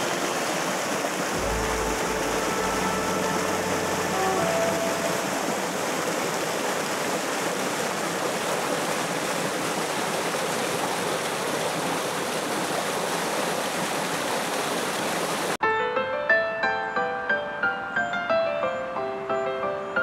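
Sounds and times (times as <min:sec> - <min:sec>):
rushing mountain water: 0:00.0 - 0:15.6.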